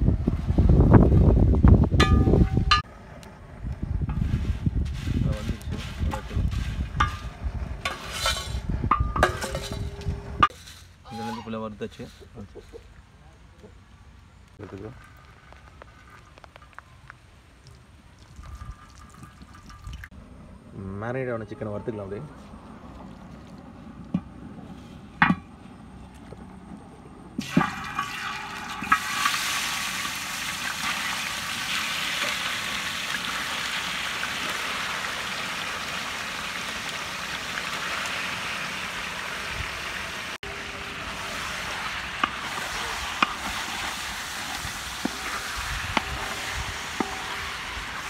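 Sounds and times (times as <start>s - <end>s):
chicken sizzling in hot oil: 27.4s - 48.0s.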